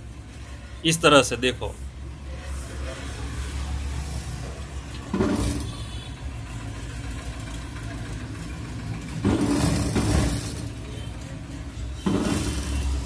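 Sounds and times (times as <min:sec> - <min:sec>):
sewing machine stitching: 0:05.1 - 0:05.8, 0:07.4 - 0:11.0, 0:12.0 - 0:13.0.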